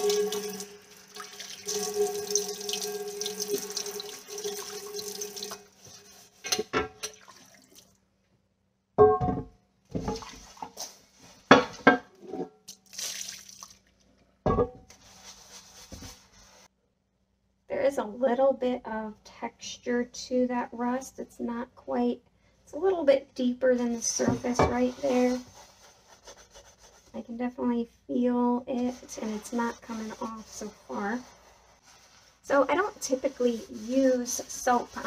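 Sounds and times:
faucet running water into sink: 0.0s - 5.7s
skillet scrubbed with sponge: 1.6s - 6.7s, 14.9s - 16.7s, 23.6s - 27.6s, 28.2s - 35.0s.

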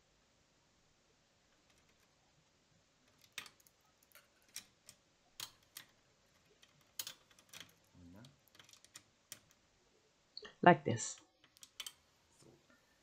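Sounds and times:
hex key metal clicks: 3.1s - 9.6s, 11.4s - 12.0s.

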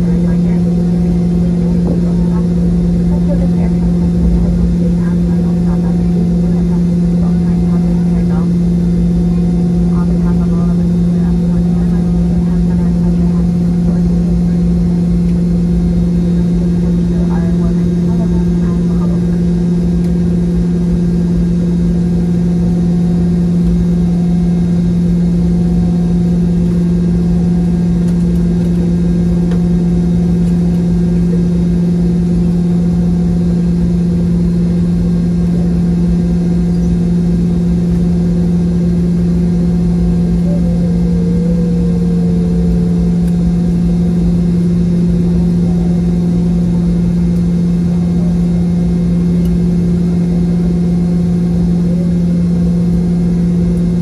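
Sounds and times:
jet engines idling drone: 0.0s - 54.0s.

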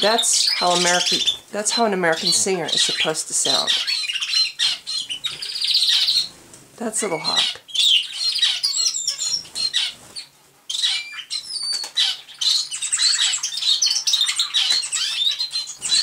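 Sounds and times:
canary singing chirps and trills: 0.0s - 16.0s.

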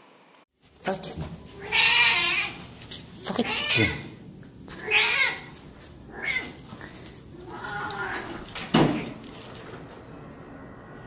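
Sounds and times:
cat meowing: 1.6s - 2.6s, 3.3s - 4.2s, 4.8s - 5.5s, 6.1s - 6.6s, 7.3s - 8.5s.

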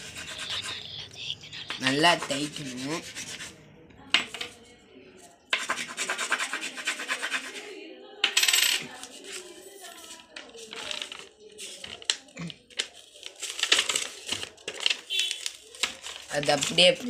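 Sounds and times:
coin scratching on paper: 0.0s - 1.0s, 1.7s - 3.5s, 5.6s - 7.7s.

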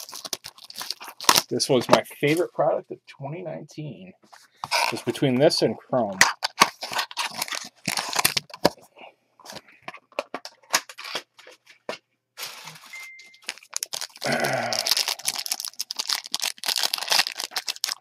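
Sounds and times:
foil wrapper crinkling and tearing: 0.0s - 1.5s, 6.2s - 8.8s, 10.4s - 11.4s, 12.4s - 18.0s.

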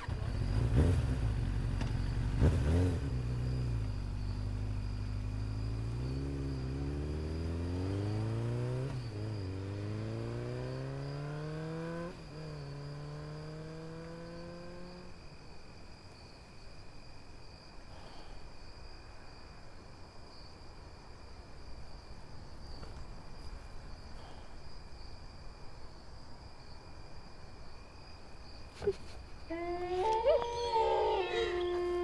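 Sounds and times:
insect trill: 0.0s - 32.0s
dogs howling: 29.5s - 32.0s.

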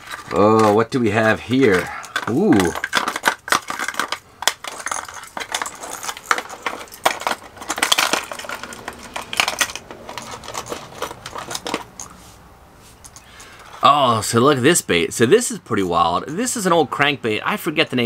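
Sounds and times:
fishing lures clattering in tackle box: 0.0s - 12.2s.

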